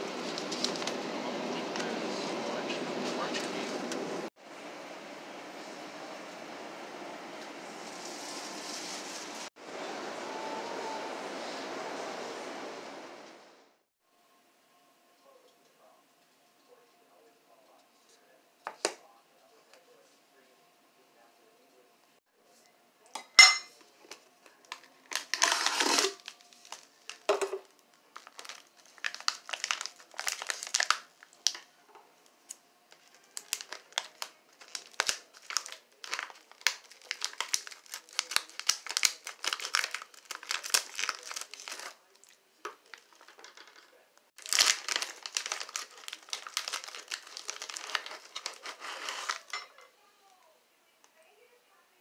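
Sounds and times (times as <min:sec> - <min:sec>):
foil wrappers crinkling: 0:00.1 - 0:01.0, 0:24.1 - 0:31.7, 0:32.5 - 0:49.7
scissors cutting foil: 0:44.4 - 0:49.5.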